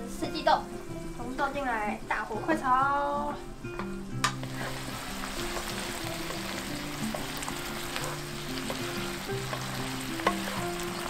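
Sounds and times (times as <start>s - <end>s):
food sizzling in a wok: 0.0s - 11.0s
soft background music: 0.0s - 11.0s
wooden spatula scraping pan: 4.4s - 11.0s.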